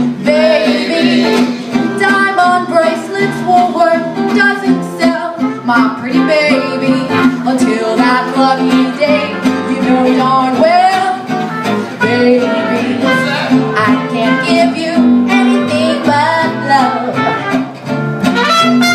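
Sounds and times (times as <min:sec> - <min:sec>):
woman singing: 0:00.0 - 0:11.4, 0:12.0 - 0:13.2, 0:13.8 - 0:17.4
acoustic guitar: 0:00.0 - 0:18.9
trumpet: 0:05.4 - 0:07.4, 0:11.3 - 0:18.9.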